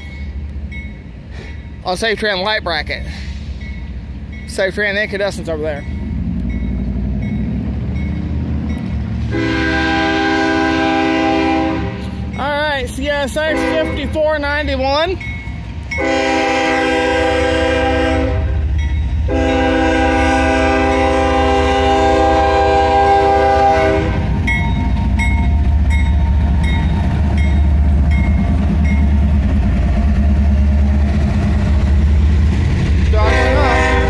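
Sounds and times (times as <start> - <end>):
crossing bell dinging: 0.0 - 2.4, 3.6 - 9.1, 12.3 - 17.2, 18.2 - 19.8, 24.4 - 29.3
train rumbling past: 0.0 - 34.0
train horn blasts: 9.3 - 12.1, 13.5 - 14.2, 16.0 - 24.3, 33.1 - 34.0.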